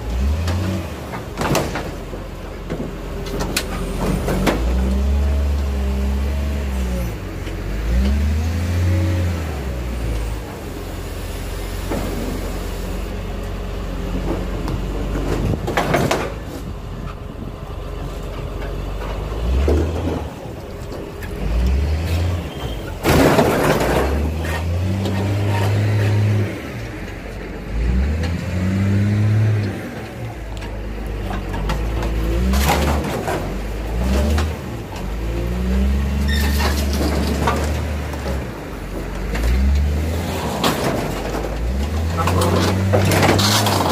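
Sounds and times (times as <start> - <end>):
diesel engine revving: 0.0 - 43.9
sheet metal bangs and crunches: 22.8 - 24.6.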